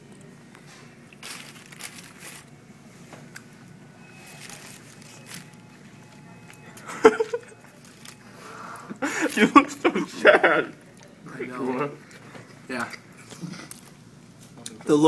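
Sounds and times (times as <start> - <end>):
paper wrapper crinkling: 1.1 - 2.6, 4.2 - 6.6, 7.2 - 9.6.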